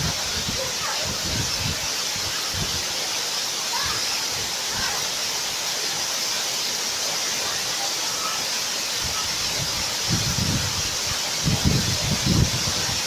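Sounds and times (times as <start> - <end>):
wind buffeting microphone: 0.0 - 2.8, 9.0 - 13.0
waterfall rushing onto rocks: 0.0 - 13.0.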